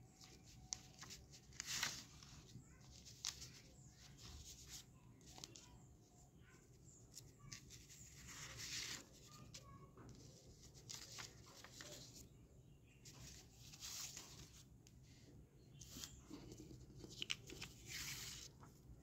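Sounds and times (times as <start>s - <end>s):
paper banknotes rustling: 0.2s - 3.6s, 10.5s - 12.2s, 15.8s - 18.7s.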